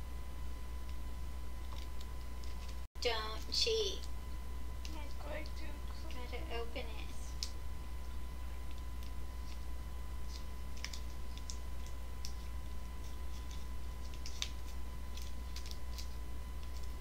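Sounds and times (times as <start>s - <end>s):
low electrical hum: 0.0s - 17.0s
plastic wrapper crinkling: 10.2s - 17.0s.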